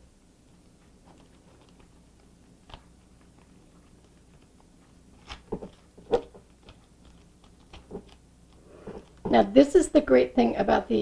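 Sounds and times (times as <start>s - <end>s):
aluminium foil crinkling: 1.0s - 9.4s.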